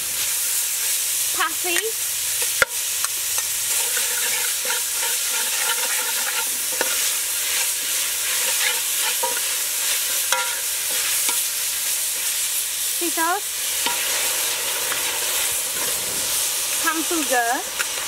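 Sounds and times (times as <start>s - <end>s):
aromatics sizzling in oil: 0.0s - 18.0s
ladle clinking and scraping pot: 3.7s - 11.5s.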